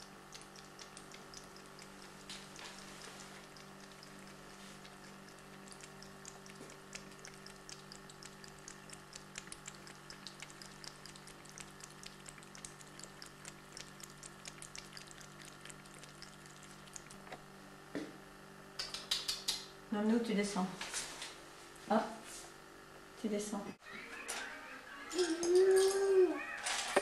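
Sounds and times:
cat lapping water: 0.0 - 17.4
faint steady hum: 0.0 - 27.0.

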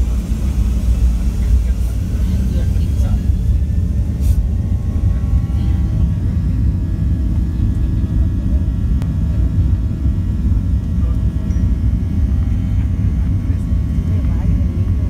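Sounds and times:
faint engine whine: 0.0 - 15.0
jet engines rumbling: 0.0 - 15.0.

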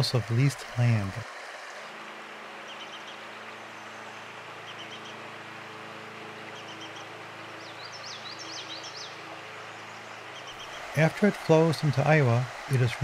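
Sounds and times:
stream water flowing: 0.0 - 13.0
small birds chirping: 2.6 - 5.3, 6.4 - 13.0.

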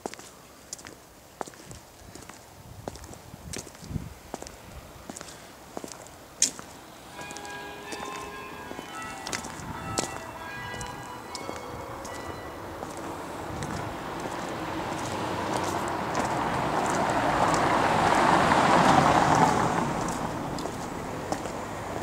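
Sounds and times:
car passing by: 6.8 - 22.0.

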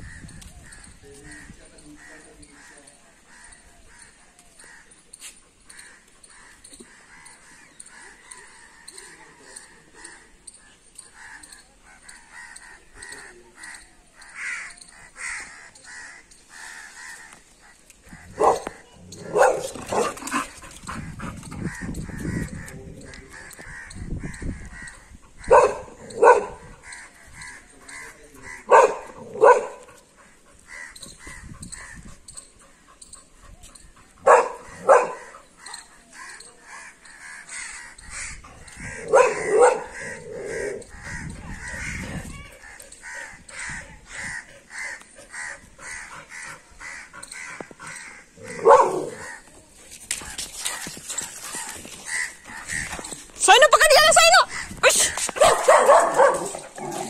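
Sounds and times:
dog barking: 18.4 - 20.2, 25.4 - 26.6, 28.7 - 29.9, 34.2 - 35.3, 39.0 - 40.0, 48.6 - 49.2, 55.4 - 56.7.

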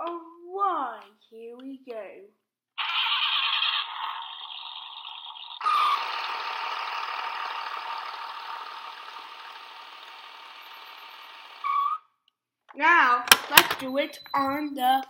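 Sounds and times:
toy car electronic engine sound: 2.8 - 12.1.

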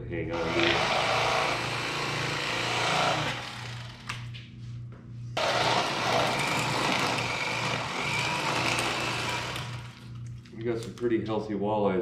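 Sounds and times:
electric fillet knife buzzing: 0.3 - 4.3, 5.4 - 10.3.

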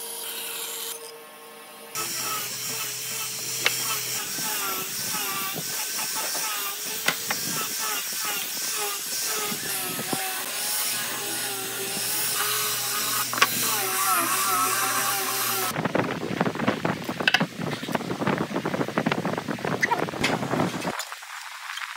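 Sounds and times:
angle grinder sanding wood: 2.0 - 15.8.

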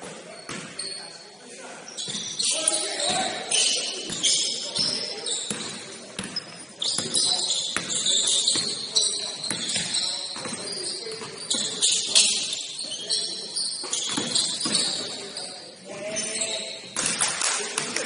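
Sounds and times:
sneakers squeaking on court: 0.0 - 17.2
basketball bouncing: 7.8 - 8.8, 13.9 - 15.0.

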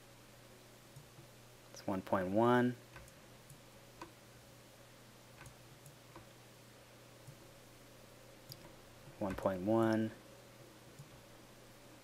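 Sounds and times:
low steady hum: 0.0 - 12.0
computer mouse clicks: 2.9 - 4.2, 5.4 - 6.3, 8.4 - 10.1.

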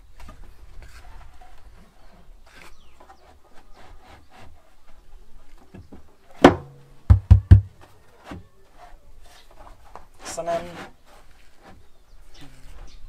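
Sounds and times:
light clicks and scrapes: 0.2 - 6.1, 8.0 - 13.0
deep thumps: 6.4 - 7.8
loud knock ringing in wooden box: 6.4 - 7.8.

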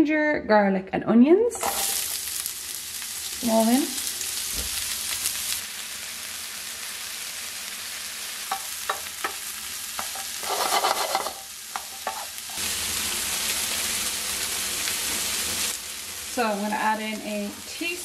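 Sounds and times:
vegetables sizzling in oil: 1.6 - 18.0
wooden spoon knocking on pan: 8.5 - 9.4.

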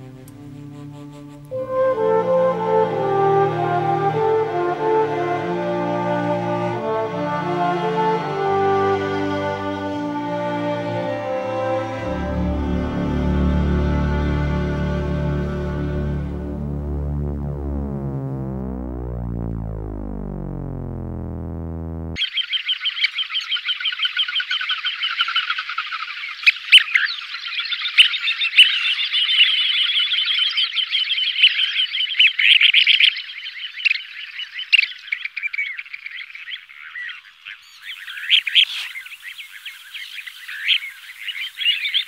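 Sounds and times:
synth music: 0.0 - 22.3
frogs calling: 22.2 - 42.0.

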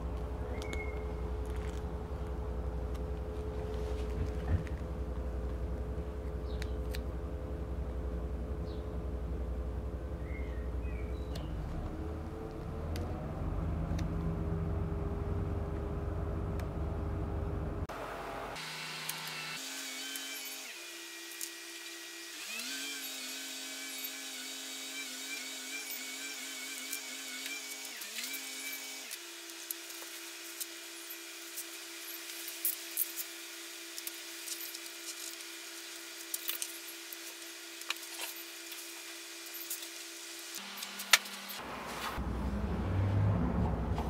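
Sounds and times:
adhesive film clicks and rustles: 34.0 - 38.9.

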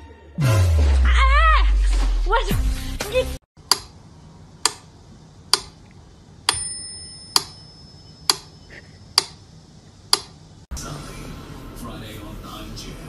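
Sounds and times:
high bell-like ringing: 6.5 - 8.3.

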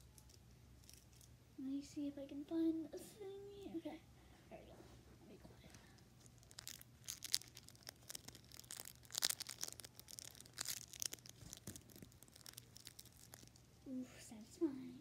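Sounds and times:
rustling and crinkling from handling: 4.6 - 13.8.

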